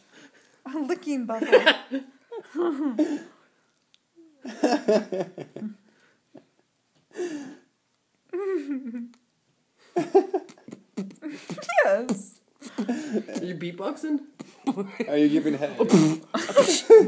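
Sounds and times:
woman making silly vocal noises: 0:11.0 - 0:12.8.

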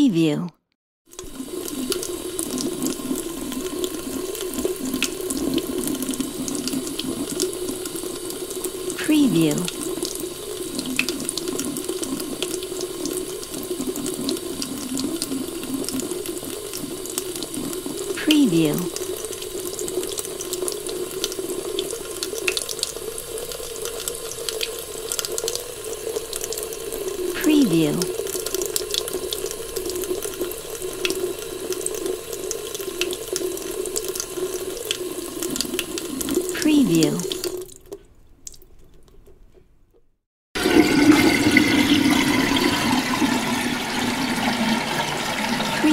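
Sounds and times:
faucet water pouring into basin: 0:01.1 - 0:38.7, 0:40.6 - 0:45.9.

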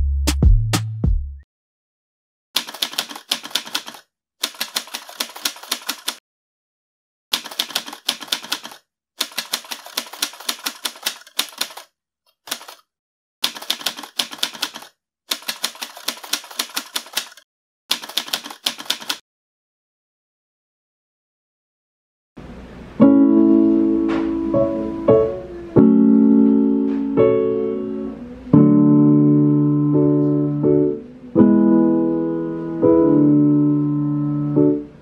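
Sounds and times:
typewriter key clacks: 0:02.6 - 0:06.2, 0:07.4 - 0:11.9, 0:12.5 - 0:12.8, 0:13.4 - 0:19.2.

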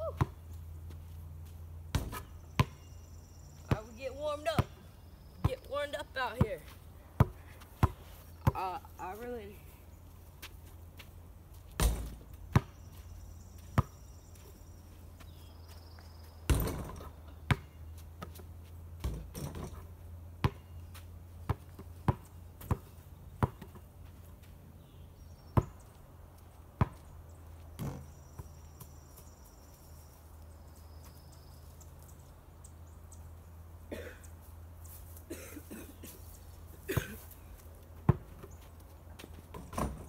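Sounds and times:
basketball thuds: 0:11.8 - 0:12.7, 0:16.5 - 0:17.7.

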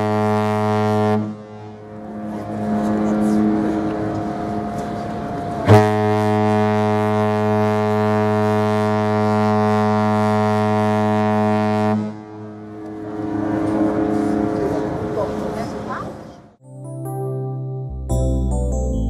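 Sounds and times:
ship horn deep blast: 0:00.0 - 0:15.0.

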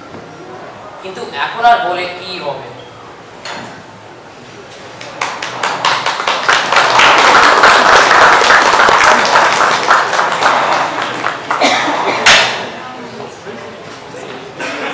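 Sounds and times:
audience clapping: 0:04.9 - 0:12.6.

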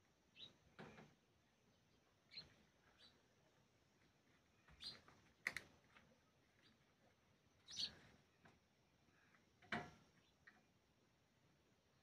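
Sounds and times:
sparrows chirping: 0:00.2 - 0:03.6, 0:04.4 - 0:05.6, 0:06.2 - 0:09.4.

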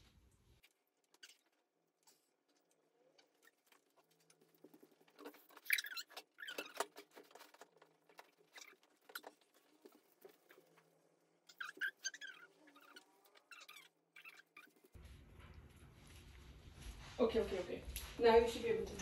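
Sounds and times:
clothing rustling: 0:14.2 - 0:19.0.

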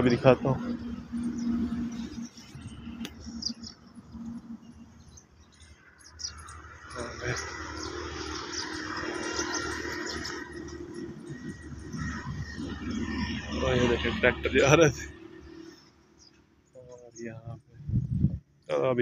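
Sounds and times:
vehicle engine passing: 0:00.0 - 0:16.2
small birds chirping: 0:00.0 - 0:19.0.

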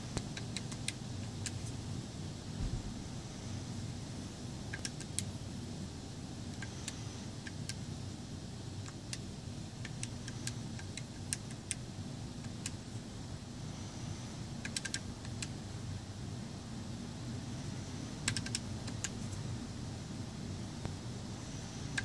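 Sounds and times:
steady low hum: 0:00.0 - 0:22.0
keypad buttons clicking: 0:00.3 - 0:01.6, 0:04.7 - 0:05.3, 0:14.6 - 0:15.5, 0:18.3 - 0:19.2.

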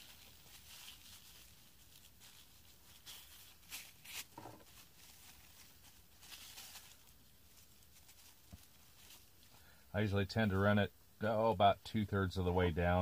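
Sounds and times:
plastic bag rustling: 0:00.0 - 0:09.5.

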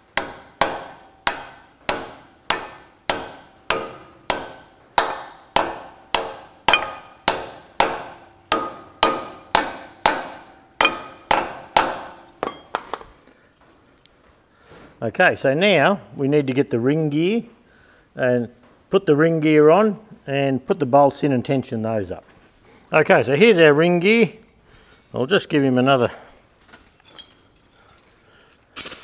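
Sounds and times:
hammer tapping on steel: 0:00.0 - 0:12.9.

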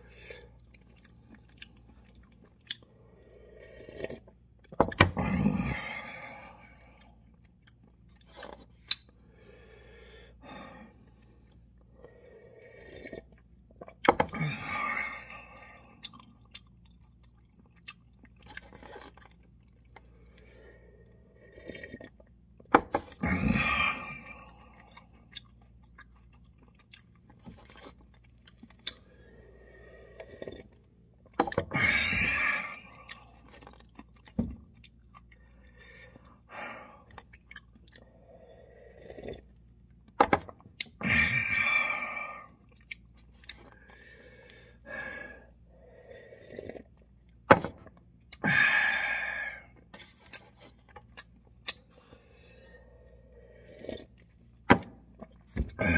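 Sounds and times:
person chewing noodles: 0:00.2 - 0:09.8, 0:11.0 - 0:54.6
slurping broth: 0:02.8 - 0:04.4, 0:12.0 - 0:13.6, 0:20.1 - 0:22.4, 0:27.4 - 0:34.3, 0:35.6 - 0:39.6, 0:40.8 - 0:47.1, 0:48.6 - 0:54.6.

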